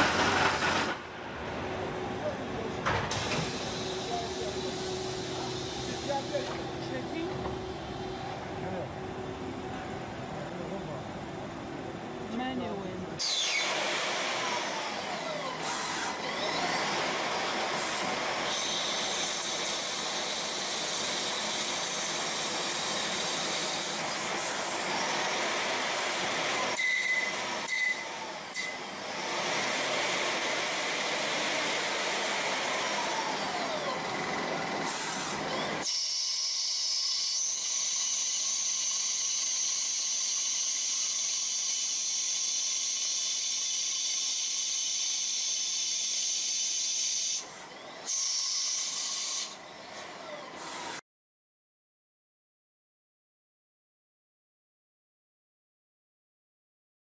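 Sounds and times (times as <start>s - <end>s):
machine tools cutting metal: 0.0s - 1.0s, 13.2s - 51.0s
high machine whine: 0.0s - 51.0s.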